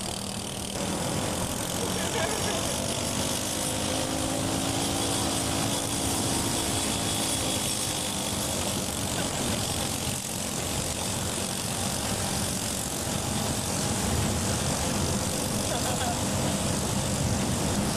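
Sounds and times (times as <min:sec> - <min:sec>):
riding lawn mower engine running: 0:00.0 - 0:17.9.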